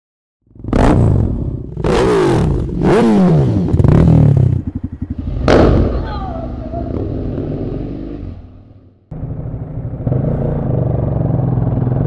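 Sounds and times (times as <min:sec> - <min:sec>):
motorcycle engines revving: 0:00.5 - 0:12.0
motorcycle engine idling unevenly: 0:04.2 - 0:07.0.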